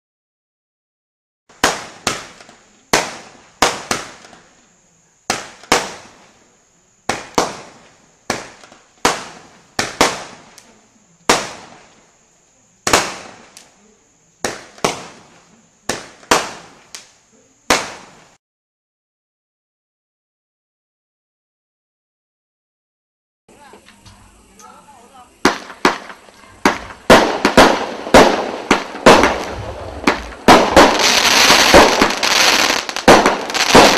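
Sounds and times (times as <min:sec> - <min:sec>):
firework bangs: 0:01.5 - 0:04.5, 0:05.3 - 0:06.3, 0:07.0 - 0:12.1, 0:12.8 - 0:18.4, 0:23.5 - 0:33.9.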